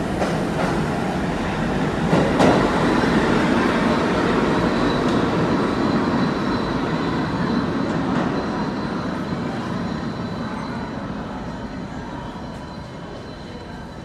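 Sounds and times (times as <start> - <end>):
subway train rumble: 0.0 - 14.0
high wheel squeal: 3.6 - 14.0.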